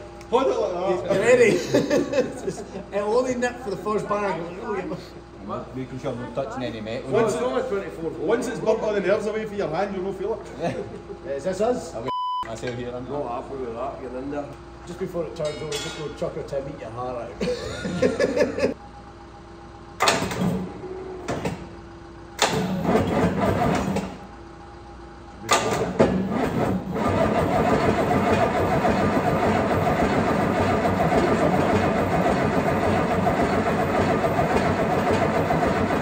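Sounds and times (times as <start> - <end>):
diesel engine cranking: 22.4 - 24.3, 25.4 - 36.0.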